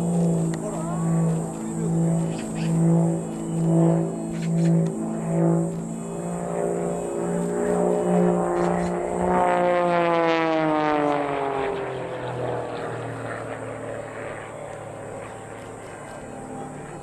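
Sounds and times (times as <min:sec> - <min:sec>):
propeller biplane passing by: 0:00.0 - 0:17.0.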